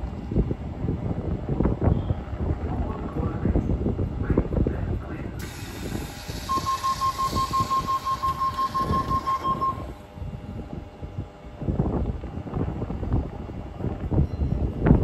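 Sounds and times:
train door warning beeps: 6.2s - 10.0s.

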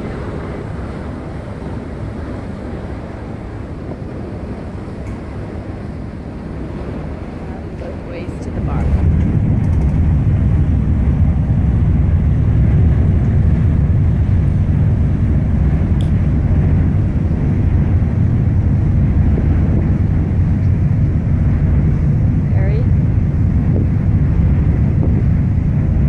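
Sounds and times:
ship running noise: 0.0s - 26.0s
wind buffeting microphone: 0.0s - 26.0s.

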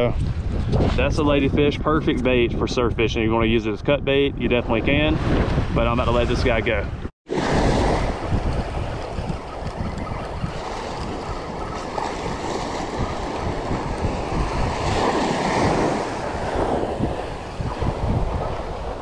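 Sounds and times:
wind buffeting microphone: 0.0s - 19.0s
surf breaking on beach: 7.3s - 19.0s.

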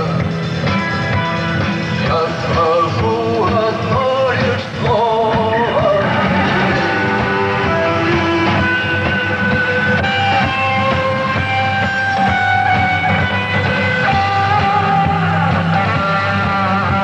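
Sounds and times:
rock band playing live: 0.0s - 17.0s
person singing: 1.9s - 11.3s.

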